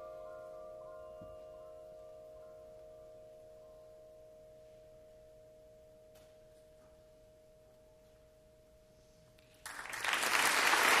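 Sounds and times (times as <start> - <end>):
audience applause: 9.6 - 11.0.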